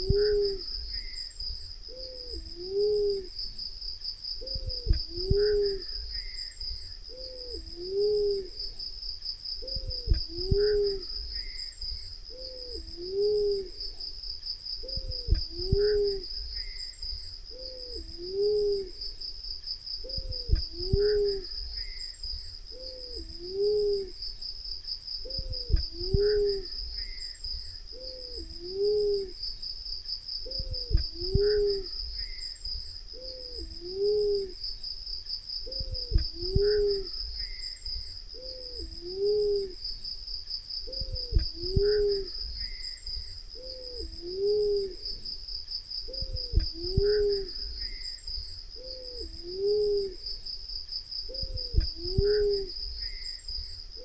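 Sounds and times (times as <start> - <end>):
high insect buzz: 0.0 - 54.0
dove two-note hooting call: 1.9 - 3.4, 4.5 - 6.0, 7.1 - 8.6, 22.8 - 24.2, 27.9 - 29.4, 33.2 - 34.6, 38.4 - 39.8.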